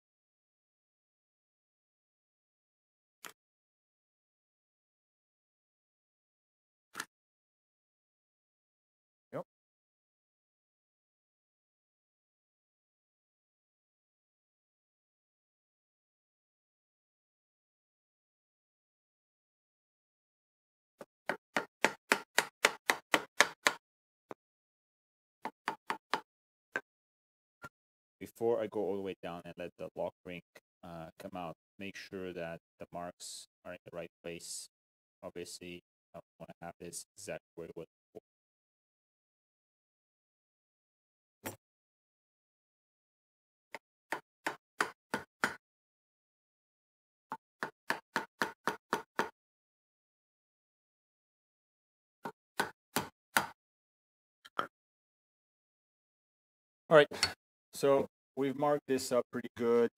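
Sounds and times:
hammer tapping: 21.5s - 23.8s
sharp knocks on metal joint: 21.6s - 23.8s.

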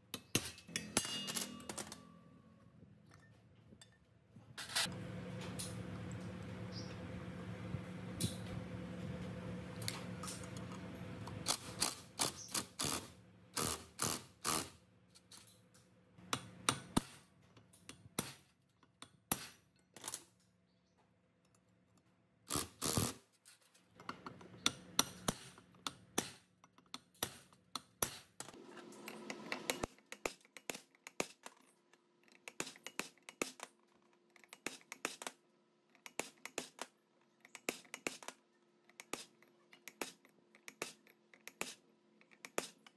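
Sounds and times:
motor-like hum: 4.9s - 13.8s.

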